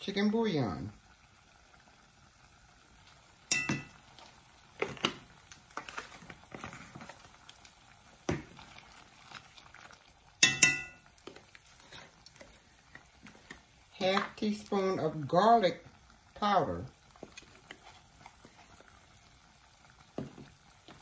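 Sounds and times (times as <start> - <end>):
metal utensils clinking: 3.5 - 4.0, 10.4 - 11.1.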